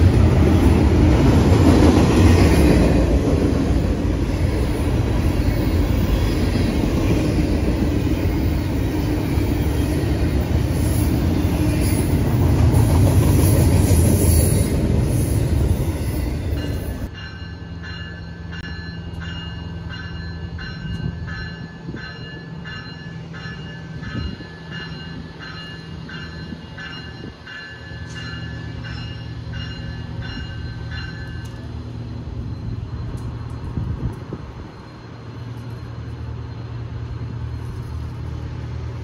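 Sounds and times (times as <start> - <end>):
diesel locomotive engine: 0.0 - 39.0
train warning bell: 15.5 - 38.4.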